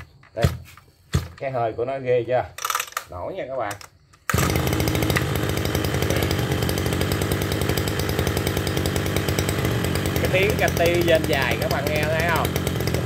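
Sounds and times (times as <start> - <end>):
recoil starter pull: 2.5 - 13.0
brush cutter engine idling: 3.7 - 13.0.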